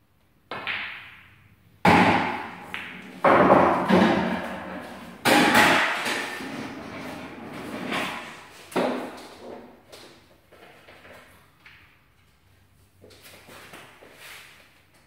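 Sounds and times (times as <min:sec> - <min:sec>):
pool balls clicking: 0:00.4 - 0:06.9.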